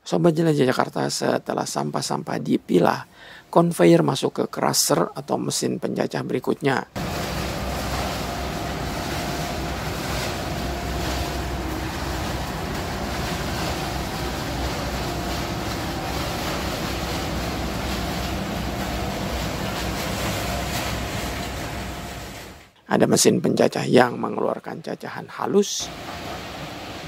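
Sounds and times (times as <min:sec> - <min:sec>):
faint steady hum: 0:07.0 - 0:22.8
waste machinery rumbling: 0:07.0 - 0:22.8, 0:25.8 - 0:27.0.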